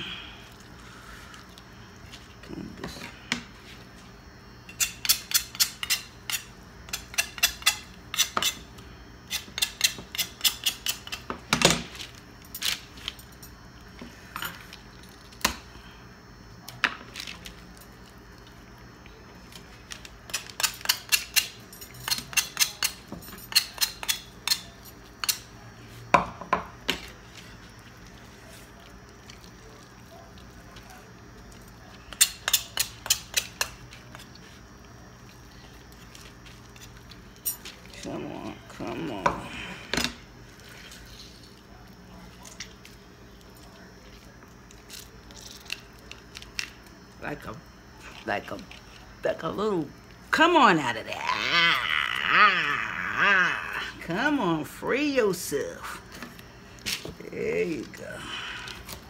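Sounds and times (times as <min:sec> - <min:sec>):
metal bangles clinking: 0:21.7 - 0:24.6.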